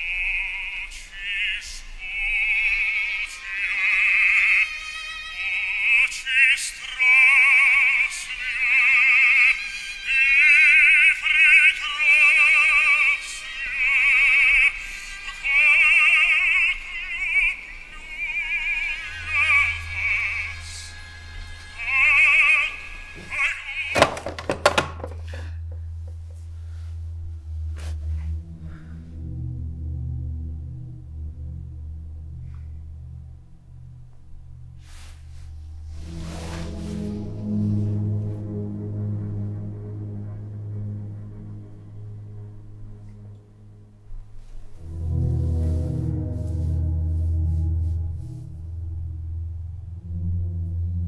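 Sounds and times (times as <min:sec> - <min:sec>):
operatic voice singing: 0:00.0 - 0:24.2
low steady drone: 0:11.8 - 0:23.3, 0:25.3 - 0:51.0.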